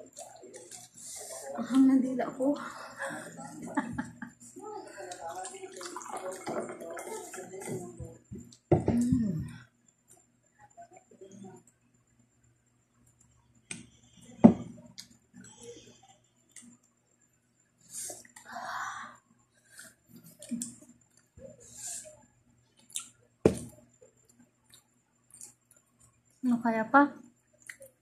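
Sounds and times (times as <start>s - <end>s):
chewing: 24.7s - 26.1s.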